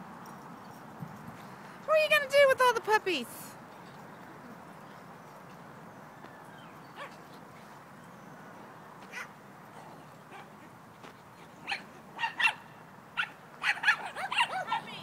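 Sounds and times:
dogs barking: 11.6s - 15.0s.

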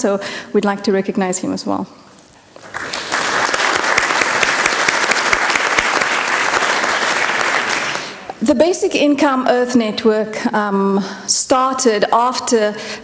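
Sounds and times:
audience applauding: 2.6s - 8.3s.

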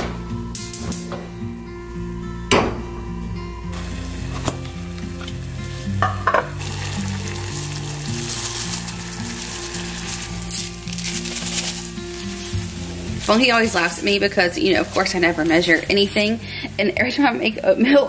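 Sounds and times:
water boiling and bubbling: 3.8s - 17.8s
saucepan knocking on stove: 6.0s - 6.6s
oats poured into water: 6.5s - 16.7s.

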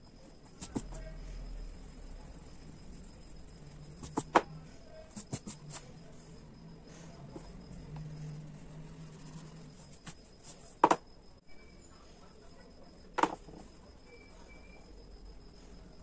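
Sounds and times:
low hum: 0.0s - 4.9s, 5.9s - 10.3s
oil pastel rubbing on paper: 8.0s - 10.2s.

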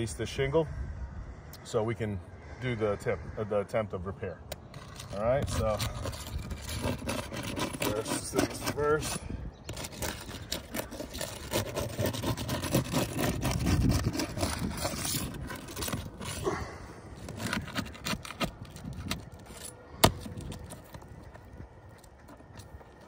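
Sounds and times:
metal bar scraping shingles: 4.7s - 16.6s, 17.2s - 21.0s.

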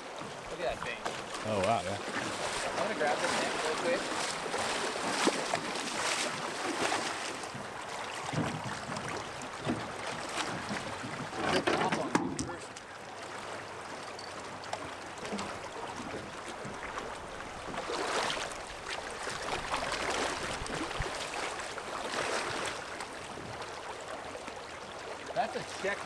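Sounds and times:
river water rushing: 0.0s - 11.4s, 12.4s - 26.0s
fish splashing at the surface: 1.2s - 7.5s.

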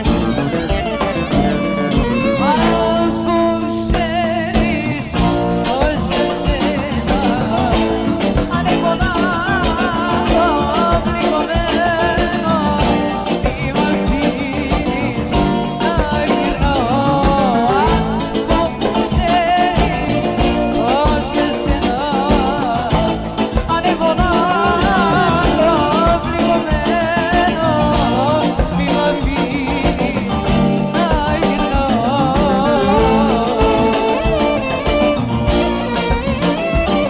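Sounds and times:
person singing with vibrato: 0.0s - 37.0s
steady percussion beat: 0.0s - 37.0s
sustained instrumental backing: 0.0s - 37.0s.

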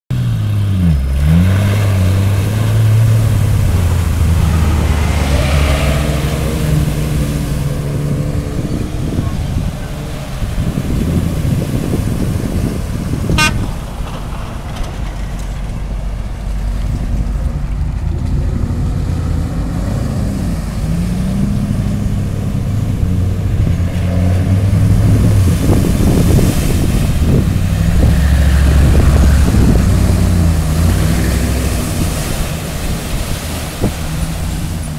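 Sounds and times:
suv engines revving: 0.1s - 34.9s
water splashing around wheels: 0.1s - 34.9s
car horn toot: 13.3s - 13.8s.

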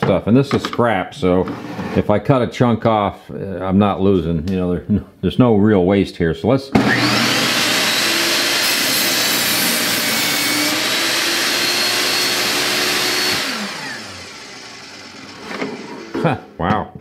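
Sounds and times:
saw blade winding down: 6.8s - 16.2s
table saw cutting wood: 6.8s - 16.3s.

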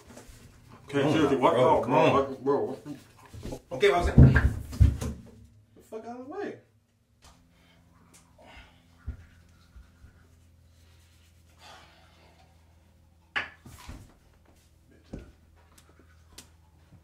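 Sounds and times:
low steady hum: 0.0s - 17.0s
heavy breathing: 7.5s - 13.0s.

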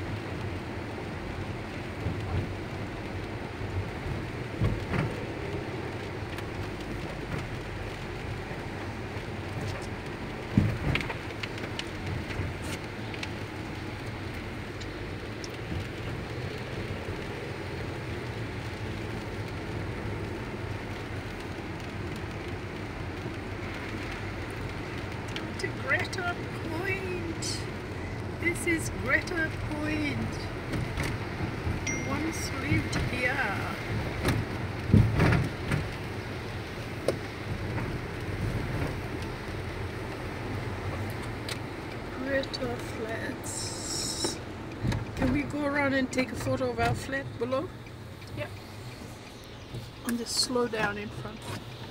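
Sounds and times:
rain and wet road noise: 0.0s - 51.9s
light ticks: 9.2s - 28.4s, 36.7s - 51.9s.

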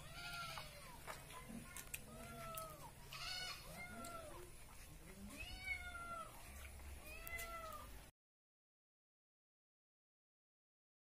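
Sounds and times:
cat meowing: 0.0s - 1.0s, 2.0s - 4.5s, 5.2s - 6.4s, 7.0s - 7.9s.

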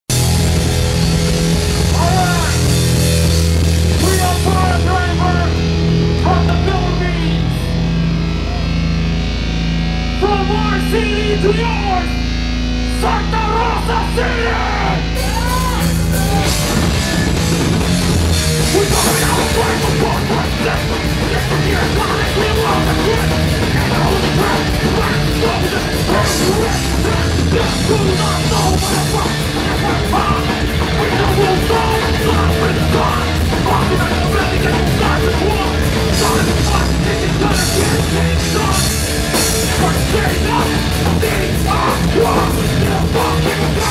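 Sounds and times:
distorted guitar and bass: 0.0s - 43.9s
drums: 0.0s - 43.9s
vocalist shouting: 13.0s - 16.8s.

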